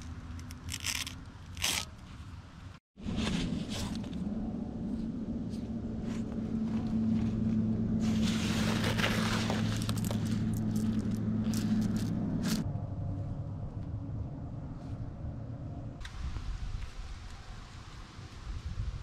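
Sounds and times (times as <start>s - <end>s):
steady low hum: 2.5s - 16.0s
hand rustling in cloth pouch: 6.0s - 12.6s.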